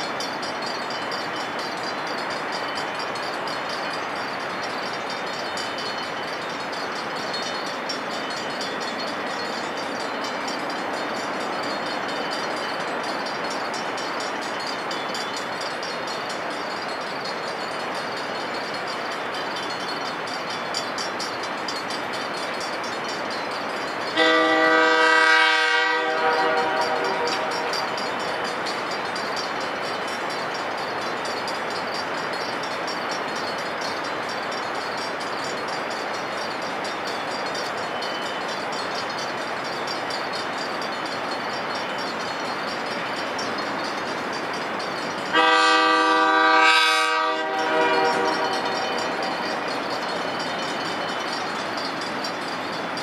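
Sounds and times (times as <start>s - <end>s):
train approaching: 0.0s - 53.0s
locomotive air horn blast: 24.2s - 27.7s, 45.3s - 48.7s.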